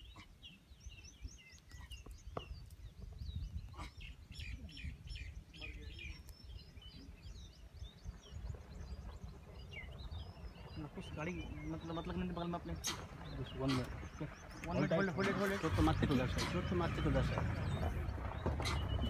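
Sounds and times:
small birds chirping: 0:00.0 - 0:19.0
steady low rumble: 0:06.1 - 0:19.0.

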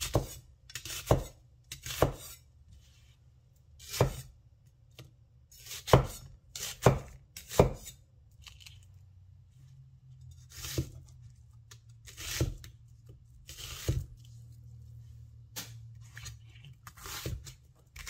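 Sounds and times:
cleaver chopping on wooden board: 0:00.0 - 0:02.3, 0:05.7 - 0:07.9.

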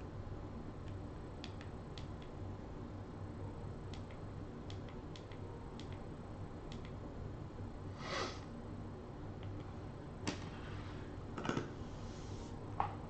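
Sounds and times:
steady low hum: 0:00.0 - 0:13.0
breathy sniff: 0:08.0 - 0:08.5.

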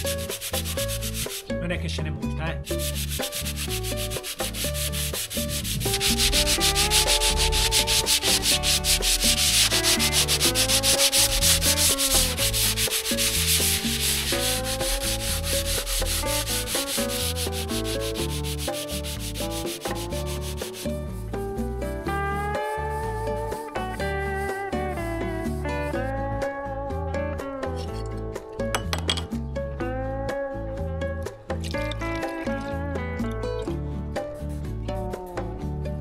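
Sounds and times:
sandpaper rubbing on wood: 0:00.0 - 0:01.5, 0:02.6 - 0:25.0
background music: 0:00.0 - 0:36.0.

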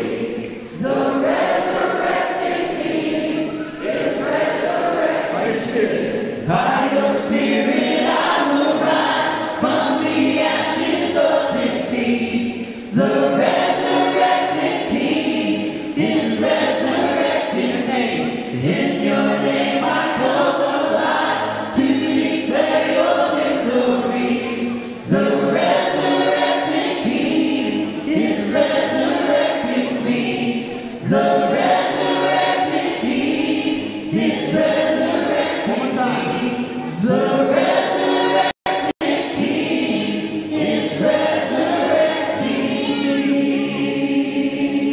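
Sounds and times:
group singing a worship song: 0:00.0 - 0:44.9.

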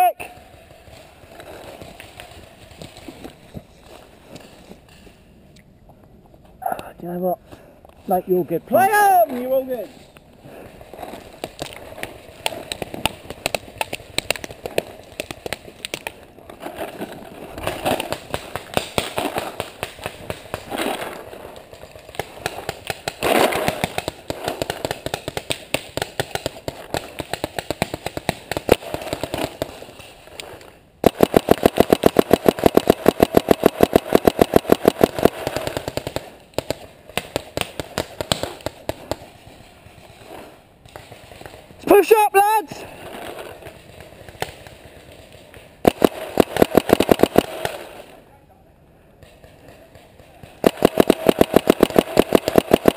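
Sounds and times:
paintball markers firing: 0:11.3 - 0:16.2, 0:22.0 - 0:39.3, 0:45.5 - 0:48.1, 0:49.2 - 0:52.9.

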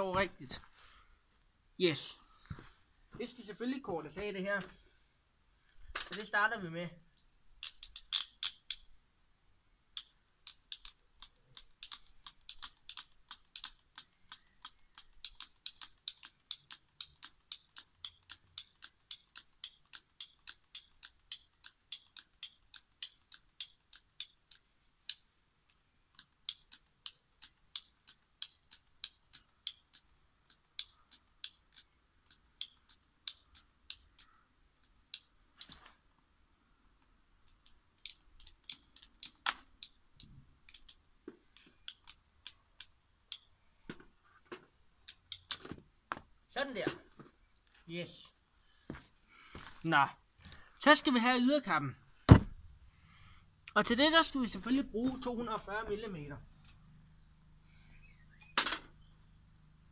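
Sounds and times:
ratchet tool clicking: 0:07.6 - 0:08.9, 0:09.9 - 0:35.8, 0:37.4 - 0:41.0, 0:41.8 - 0:43.5, 0:45.0 - 0:45.7
dull knock: 0:52.3 - 0:52.6.

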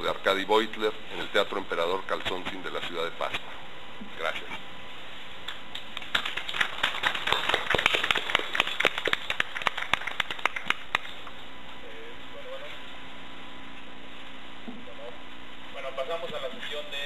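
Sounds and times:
polite applause: 0:06.0 - 0:11.2.

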